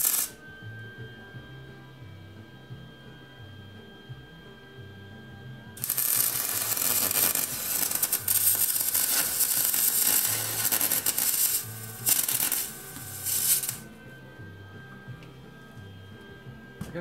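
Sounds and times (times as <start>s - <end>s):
welding arc crackling: 0.0s - 0.4s, 5.8s - 13.9s.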